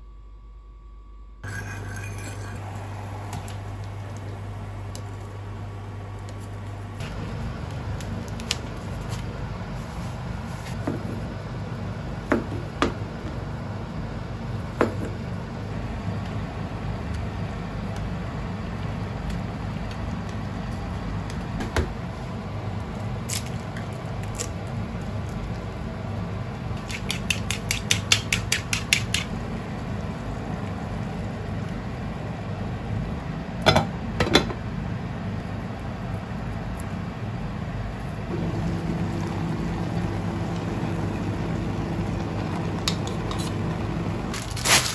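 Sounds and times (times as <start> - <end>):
steady low hum: 0.0 - 44.9
egg cracking: 26.7 - 29.4
chopsticks beating egg: 26.8 - 29.4.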